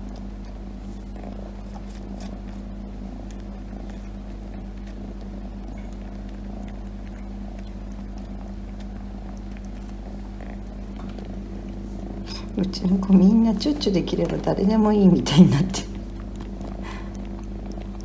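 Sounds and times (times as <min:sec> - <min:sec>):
cat purring: 0:00.0 - 0:18.0.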